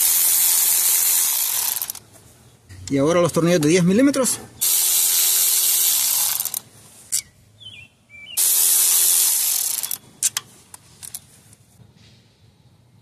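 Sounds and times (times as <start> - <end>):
pneumatic ratchet running: 0.0 - 2.0, 4.6 - 6.6, 8.4 - 10.4.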